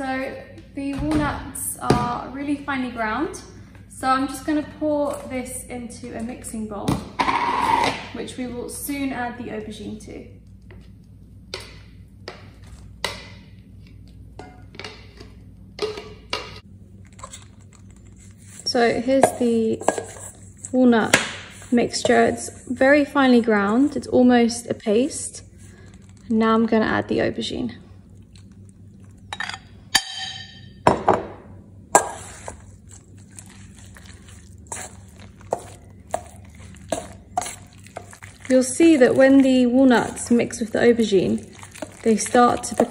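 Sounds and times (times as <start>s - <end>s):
fork scraping bowls: 17.0s - 24.1s, 31.9s - 42.9s
spoon scraping and tapping jar: 19.1s - 20.4s.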